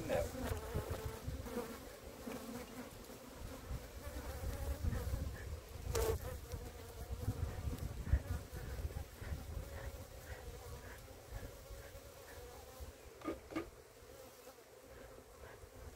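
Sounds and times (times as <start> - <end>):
bees buzzing: 0.0 - 15.9.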